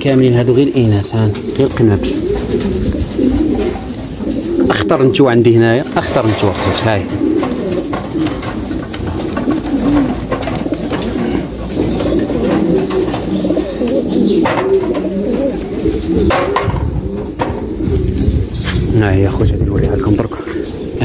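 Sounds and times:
pigeons cooing: 0.0 - 21.0.

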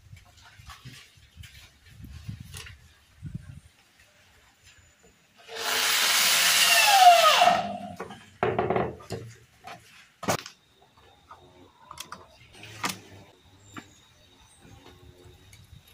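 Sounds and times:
electric drill boring into wood: 5.5 - 8.0.

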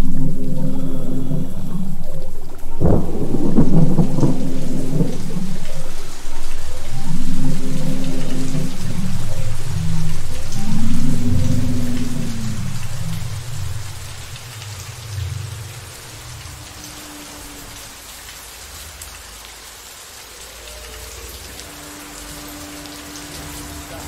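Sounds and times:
deep thunder rumble: 0.0 - 17.0
steady rain: 0.0 - 24.0.

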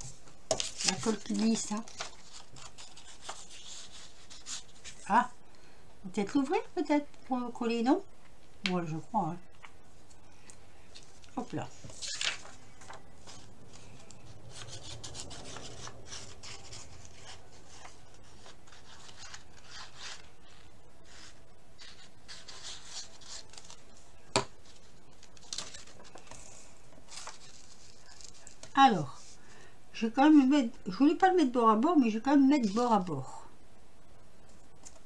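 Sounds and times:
paper rustling and rubbing: 0.0 - 5.1, 10.9 - 29.4.

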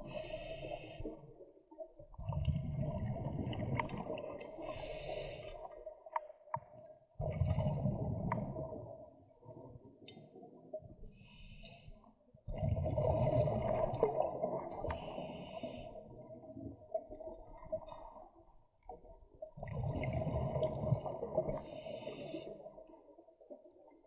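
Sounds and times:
regulator hiss: 0.0 - 1.2, 4.6 - 5.6, 15.0 - 15.9
exhaled bubbles gurgling underwater: 0.0 - 24.0.

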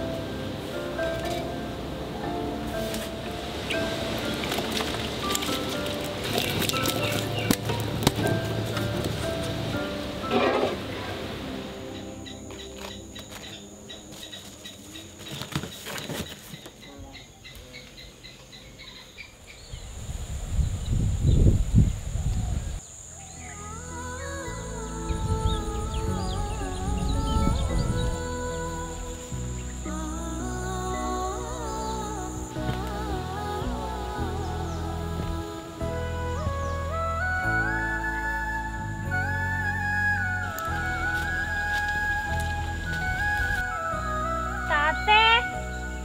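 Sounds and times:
instrumental music with held notes: 0.0 - 15.2, 23.5 - 46.0
insects droning: 0.0 - 46.0
low rumble: 23.4 - 46.0.

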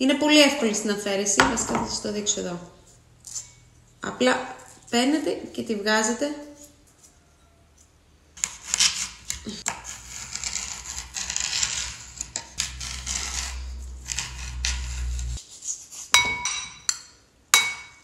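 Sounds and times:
knife cutting aloe leaf: 8.4 - 16.2
low hum: 10.1 - 15.4.

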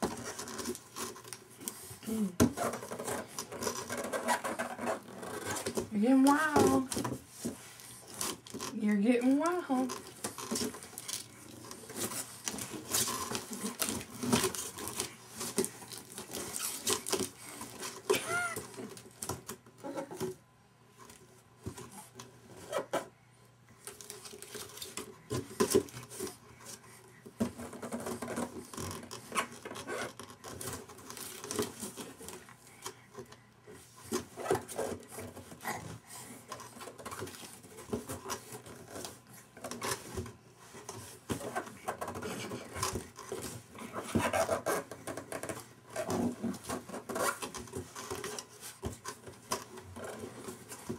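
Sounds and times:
baby vocal sound: 18.1 - 18.7.

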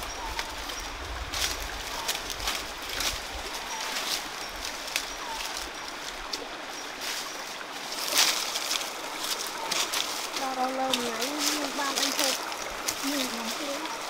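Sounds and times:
footsteps crunching dry leaves: 0.0 - 14.0
stream rushing: 0.0 - 14.0
bird chirping: 1.9 - 2.3, 3.5 - 6.0, 8.9 - 9.9.

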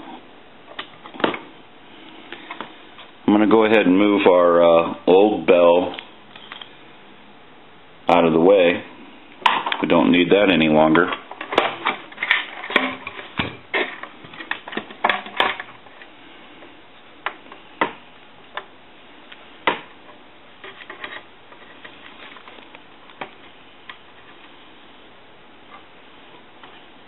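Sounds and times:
plastic parts clicking and knocking: 11.1 - 16.1.

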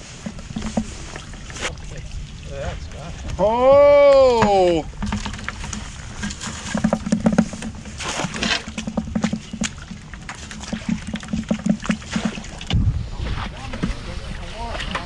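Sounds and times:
fish splashing in a bucket: 0.0 - 3.4, 4.1 - 12.8
low thud: 11.0 - 14.0.

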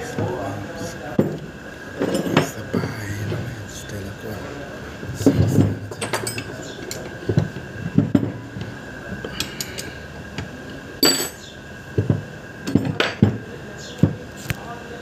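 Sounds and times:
metal tool clinking on metal: 5.9 - 7.1, 11.0 - 11.4.

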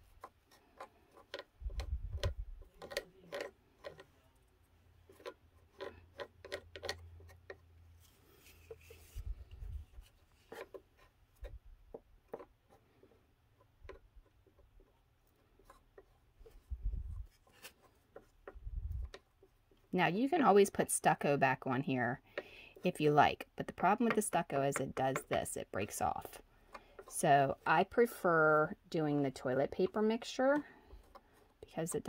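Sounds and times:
stick tapping and clicking: 0.0 - 4.1, 5.1 - 7.8, 10.4 - 16.7, 17.6 - 19.9, 22.2 - 28.2, 28.9 - 32.0.

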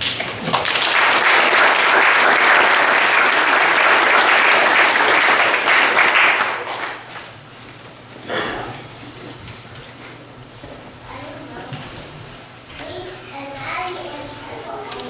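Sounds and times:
audience applauding: 0.0 - 7.4.

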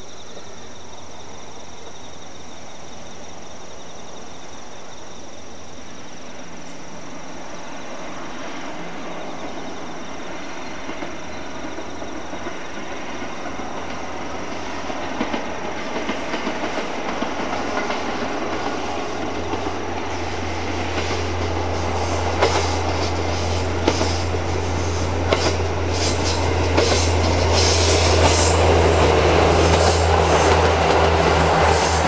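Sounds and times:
train engine drone: 0.0 - 32.0
wheels clicking over rail joints: 9.4 - 32.0.

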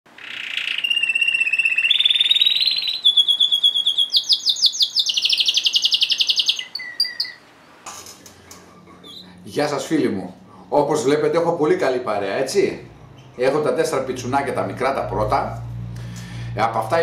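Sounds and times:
canary singing trills: 0.1 - 7.8.

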